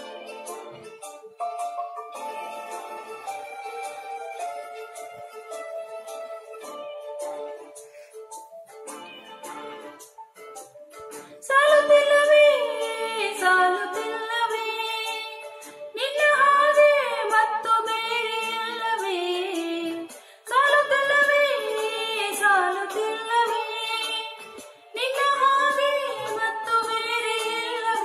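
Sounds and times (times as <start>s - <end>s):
soft instrumental backing: 0.0s - 28.0s
woman singing into microphone: 11.4s - 28.0s.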